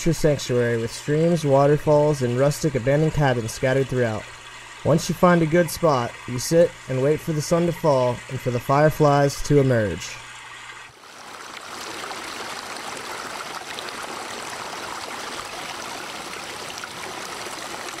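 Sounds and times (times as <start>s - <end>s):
stream rushing over rocks: 11.0s - 18.0s.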